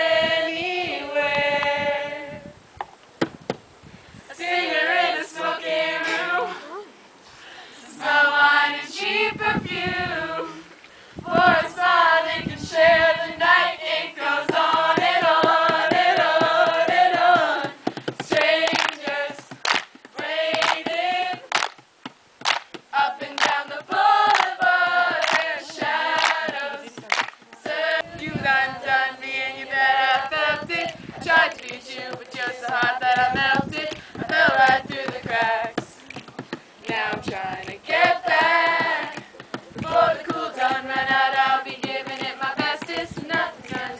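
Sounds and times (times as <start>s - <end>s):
group singing together: 0.0s - 2.6s, 4.3s - 6.8s, 7.4s - 21.8s, 22.5s - 43.9s
hand claps: 15.0s - 27.7s, 37.3s - 40.8s, 41.4s - 43.9s.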